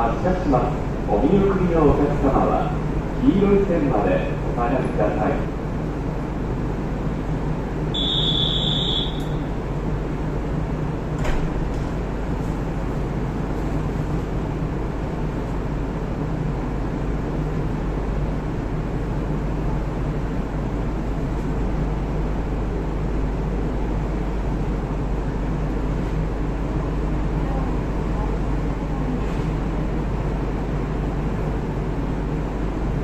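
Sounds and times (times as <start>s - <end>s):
electric train equipment humming: 0.0s - 33.0s
high electronic beep: 8.0s - 9.3s.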